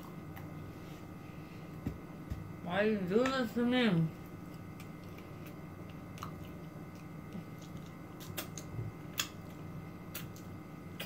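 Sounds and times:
low electrical hum: 0.0s - 11.0s
lip smacks and mouth clicks: 4.4s - 11.0s.

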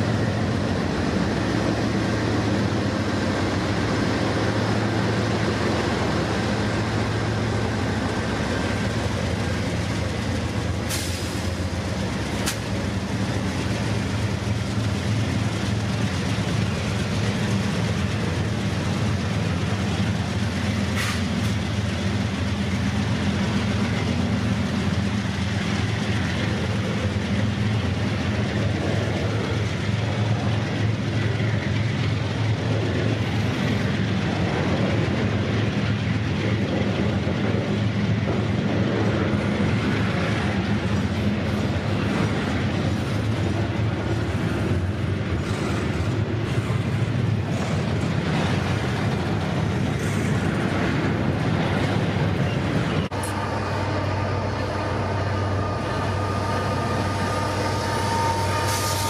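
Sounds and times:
freight train rumbling on rails: 0.0s - 59.0s
sharp click: 12.4s - 12.7s.

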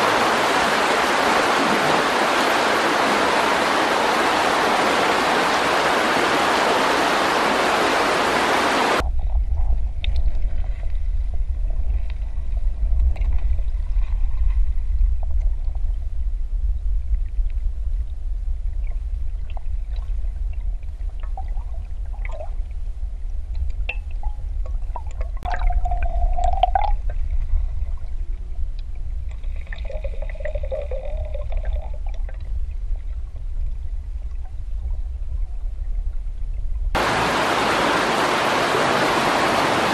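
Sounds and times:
river rushing over stones: 0.0s - 9.0s, 37.0s - 39.9s
underwater current rumble: 8.7s - 37.7s
faint underwater clicks and knocks: 9.0s - 37.0s.

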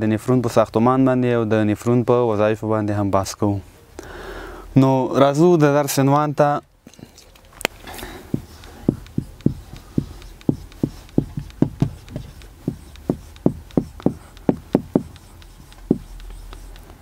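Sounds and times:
marker tapping on whiteboard: 8.1s - 17.0s.

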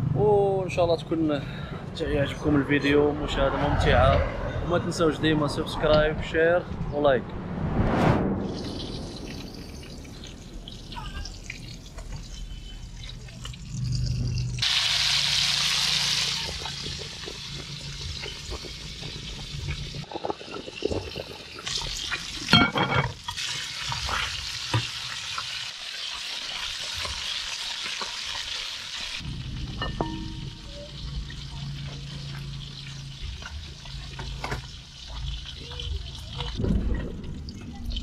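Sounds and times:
fish sizzling in hot oil: 8.6s - 36.6s.

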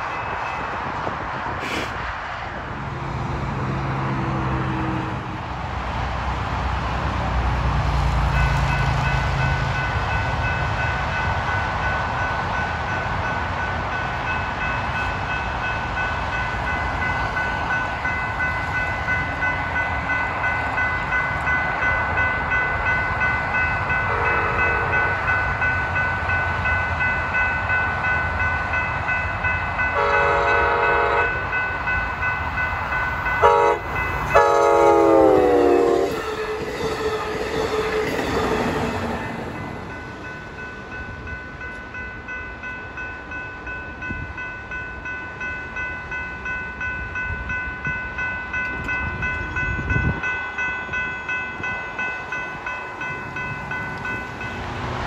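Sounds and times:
crossing bell ringing: 0.0s - 1.5s, 8.0s - 55.0s
train horn: 24.1s - 25.3s, 29.9s - 31.4s, 33.4s - 38.5s.

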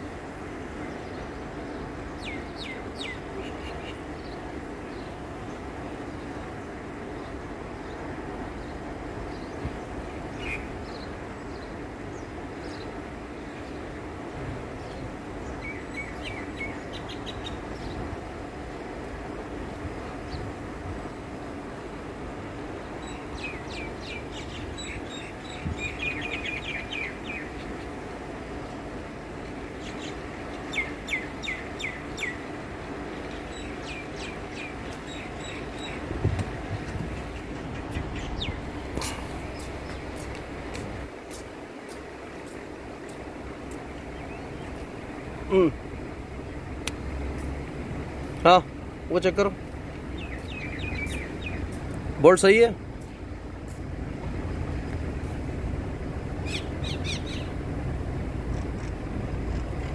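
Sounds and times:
low outdoor rumble: 0.0s - 59.9s
small birds chirping: 0.8s - 14.0s, 14.8s - 18.2s, 22.8s - 28.9s, 29.6s - 47.7s, 48.4s - 53.8s, 56.4s - 57.6s
bird chirping: 23.0s - 28.0s, 29.8s - 32.4s, 33.1s - 36.1s, 37.2s - 40.3s, 50.1s - 51.8s, 56.4s - 57.6s.

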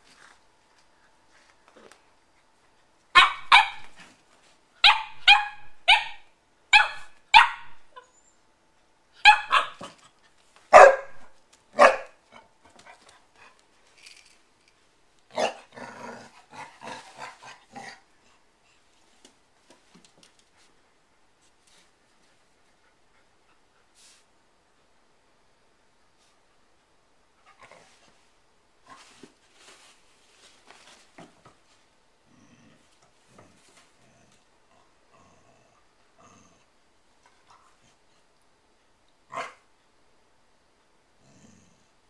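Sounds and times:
puppy barking: 3.2s - 3.9s, 4.8s - 7.8s, 9.2s - 10.0s, 10.7s - 12.2s, 39.3s - 39.6s.

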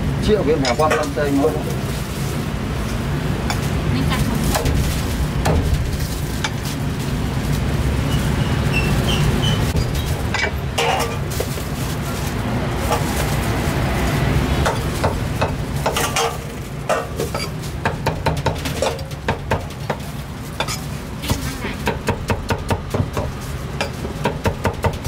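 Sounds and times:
metal utensils clattering against pan: 0.5s - 1.8s, 9.7s - 11.6s, 14.6s - 21.9s.

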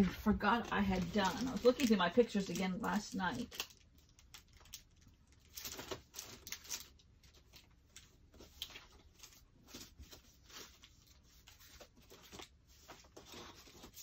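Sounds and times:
paper rustling and shuffling: 0.0s - 14.0s.

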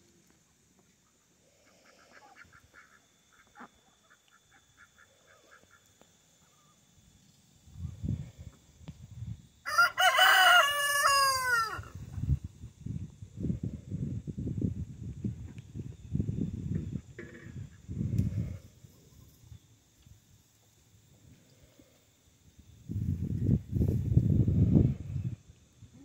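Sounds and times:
rooster crowing: 9.6s - 12.0s.

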